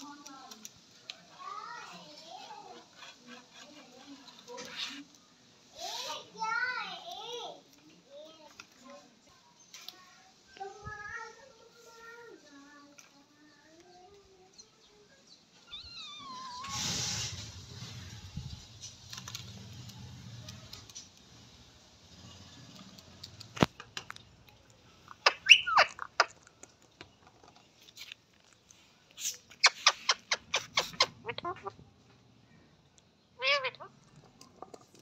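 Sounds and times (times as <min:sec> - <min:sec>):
small pets high calls: 0:15.6 - 0:16.7, 0:25.2 - 0:26.3, 0:33.4 - 0:34.0.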